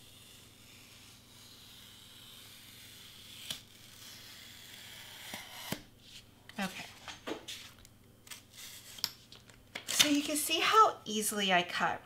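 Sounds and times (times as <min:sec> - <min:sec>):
knife cutting foam board: 0:00.0 - 0:06.8.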